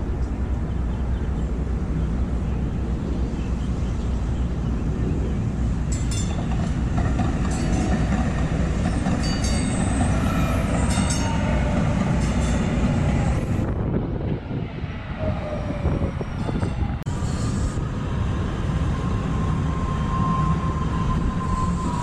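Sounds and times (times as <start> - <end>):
faint train whine: 0.0 - 22.0
light rail train rumbling past: 0.0 - 22.0
hiss of passing cars: 17.1 - 22.0.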